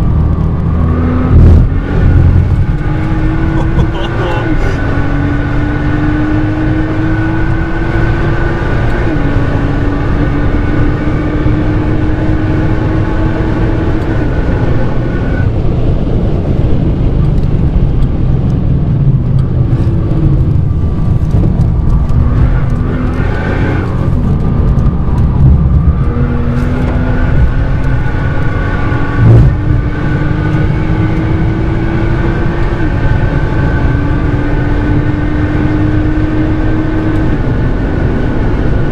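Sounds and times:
car engine accelerating: 0.0s - 38.9s.

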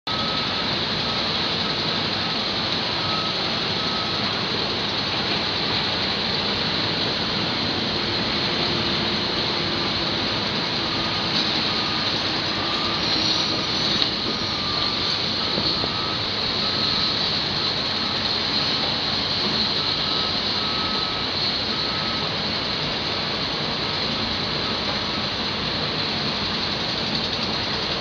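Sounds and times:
excavator engine and hydraulics: 0.1s - 28.0s.

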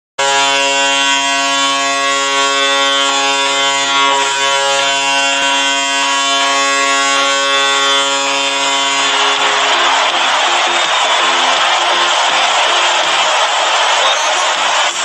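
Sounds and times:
arena goal horn blast: 0.2s - 15.0s.

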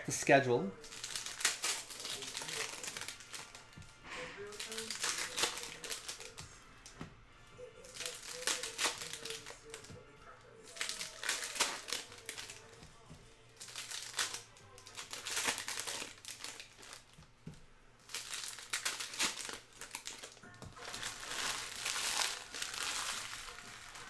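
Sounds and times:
plastic wrappers crinkling: 0.0s - 7.0s, 7.6s - 24.0s.

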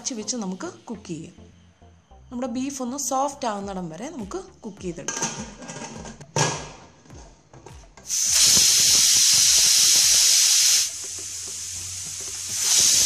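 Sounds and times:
pressure cooker whistling: 8.1s - 13.0s.

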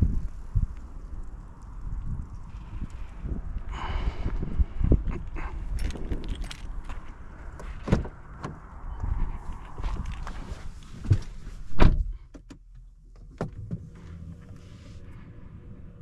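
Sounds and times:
car door shutting with a thud: 7.8s - 8.6s, 11.0s - 12.2s
footsteps: 9.0s - 11.8s.

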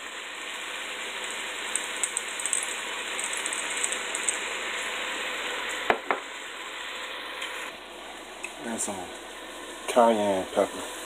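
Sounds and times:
chicken sizzling in a pan: 0.0s - 11.0s
pepper grinder ratcheting clicks: 1.7s - 4.4s.

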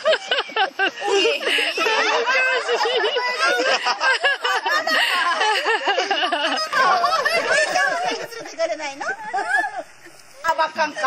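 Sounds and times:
group of people laughing: 0.0s - 10.5s
people talking: 0.0s - 11.0s.

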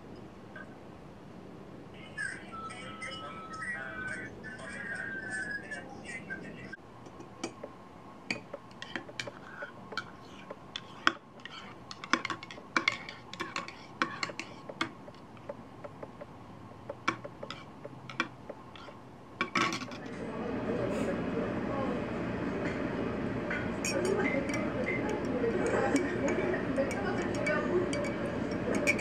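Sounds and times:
teaspoon clinking in ceramic mug: 23.8s - 29.0s.

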